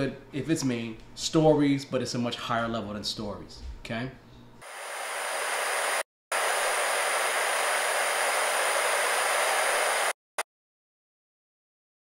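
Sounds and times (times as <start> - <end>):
tv static hiss: 4.6 - 10.2.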